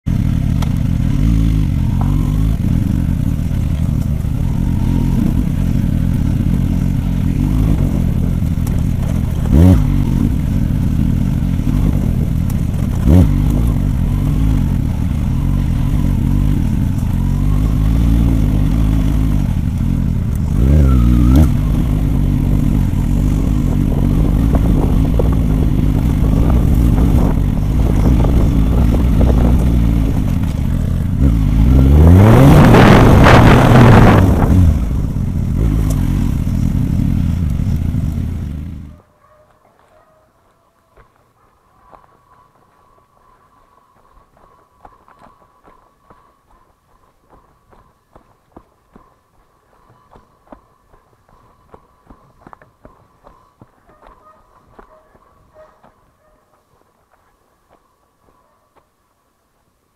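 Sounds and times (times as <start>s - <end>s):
motorcycle engine running: 0.0s - 39.1s
motorcycle throttle blips: 0.1s - 40.2s.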